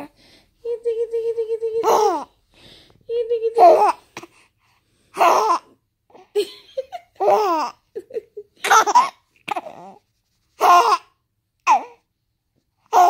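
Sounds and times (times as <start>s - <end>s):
baby laughing: 1.8s - 2.3s, 3.5s - 4.3s, 5.2s - 10.0s, 10.6s - 11.1s.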